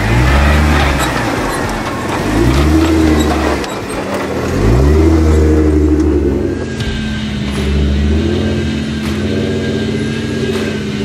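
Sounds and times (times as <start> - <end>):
vehicle engine passing: 0.0 - 11.0.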